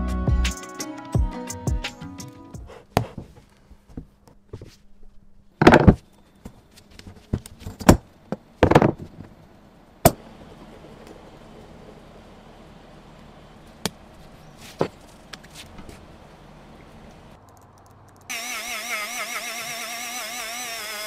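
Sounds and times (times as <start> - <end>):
tyre being pried off rim: 5.6 - 6.0.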